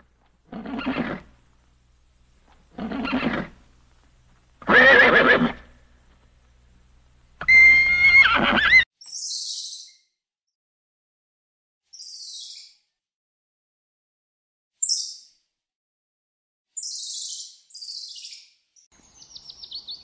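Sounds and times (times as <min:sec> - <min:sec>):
animal calling with wavering pitch: 0:07.4 - 0:08.8.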